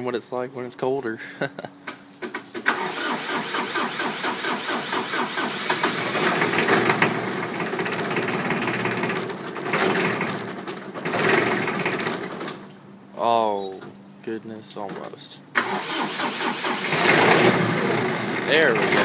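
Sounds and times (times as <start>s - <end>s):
diesel engine cranking: 2.6s - 12.8s, 15.0s - 19.0s.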